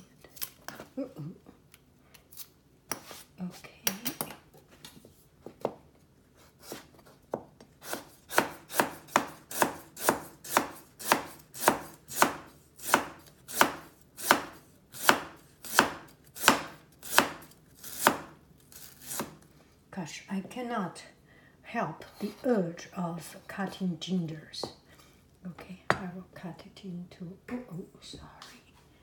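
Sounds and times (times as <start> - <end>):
knife chopping on plastic board: 6.7 - 18.4.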